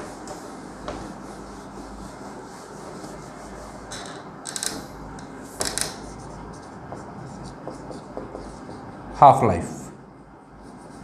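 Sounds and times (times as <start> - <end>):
cloth rubbing whiteboard: 0.0 - 3.9, 5.4 - 9.2.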